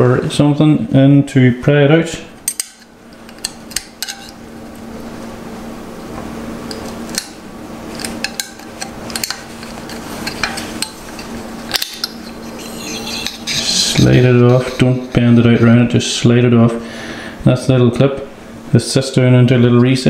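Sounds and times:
screwdriver clicking and scraping metal: 8.0s - 14.9s.

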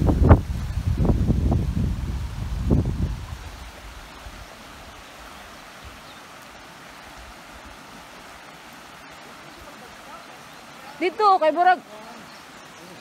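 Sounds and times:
low rumble on microphone: 0.0s - 4.5s
river rushing over rocks: 0.0s - 13.0s.

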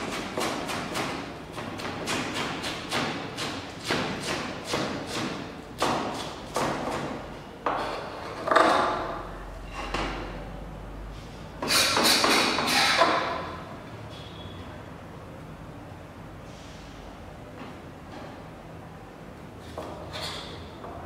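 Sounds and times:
knife chopping on a plastic board: 0.0s - 7.8s.

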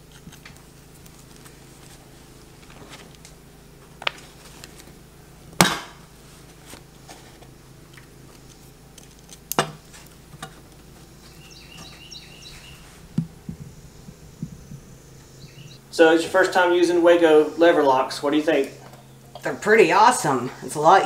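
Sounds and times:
high chirps: 11.1s - 16.0s.

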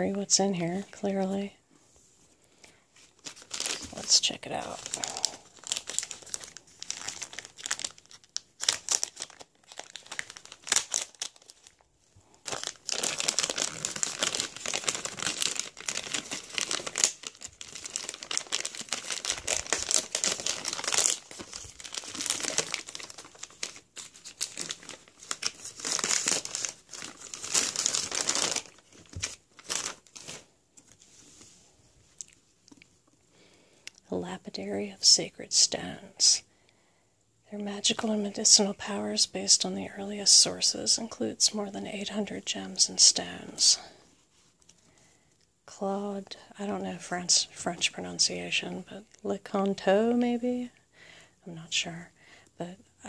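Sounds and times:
plastic crinkling and tearing: 3.0s - 31.0s.

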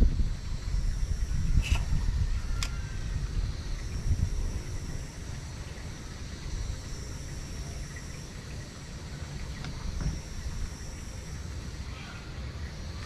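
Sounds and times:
wind rumbling on microphone: 0.0s - 8.1s
insects droning: 0.0s - 13.0s.

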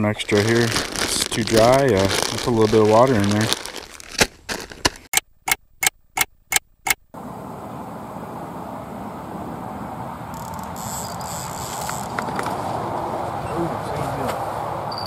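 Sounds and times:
open-air background noise: 6.7s - 15.0s.

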